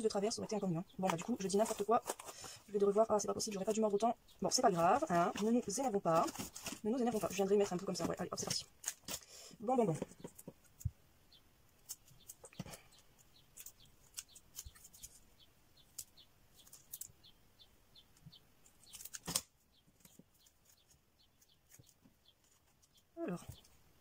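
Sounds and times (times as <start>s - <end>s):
paper rustling: 1.1s - 3.0s, 4.6s - 10.9s, 11.8s - 15.2s, 18.7s - 23.0s.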